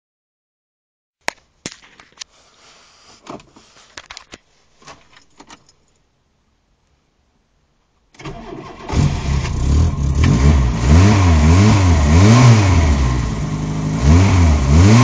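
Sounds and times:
car keys jangling: 0:04.0 - 0:06.1.

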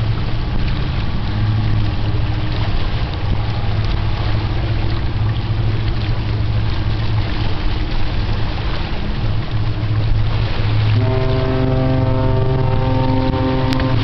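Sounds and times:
steady low rumble: 0:00.0 - 0:14.0
ship's horn blast: 0:10.7 - 0:14.0.

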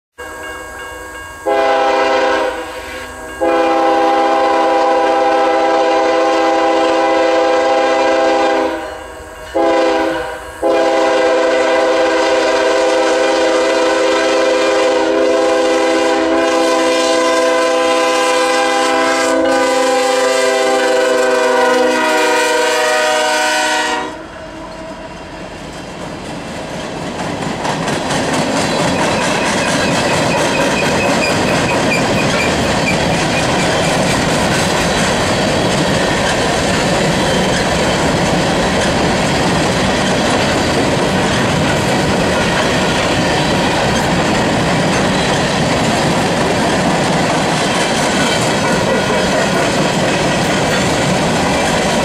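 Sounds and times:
locomotive air horn: 0:00.2 - 0:25.3
train rumbling and clattering past: 0:24.2 - 0:52.0.

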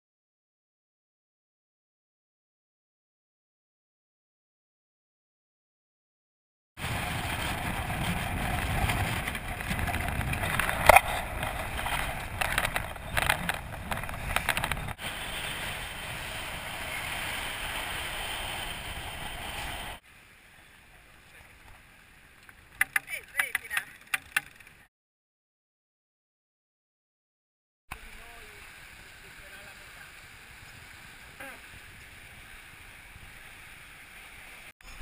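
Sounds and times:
wind rumble on microphone: 0:06.8 - 0:20.0
rushing water: 0:06.8 - 0:23.0, 0:27.9 - 0:35.0.

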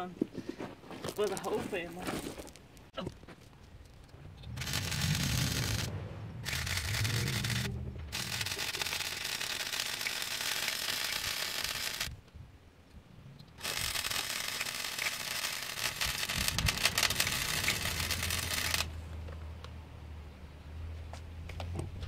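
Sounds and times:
low hum: 0:03.4 - 0:20.9
welder arc crackling: 0:04.4 - 0:12.2, 0:13.5 - 0:19.0.

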